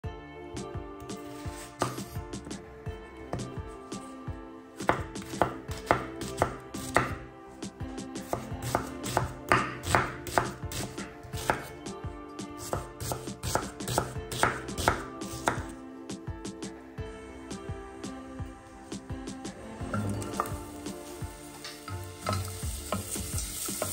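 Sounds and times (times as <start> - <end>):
knife chopping onion on wooden board: 1.2 - 2.6, 4.8 - 11.8, 12.4 - 15.7.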